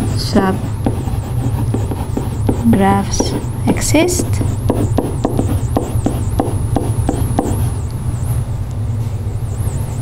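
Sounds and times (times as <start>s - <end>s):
steady low hum: 0.0s - 10.0s
marker tapping on whiteboard: 4.4s - 7.6s.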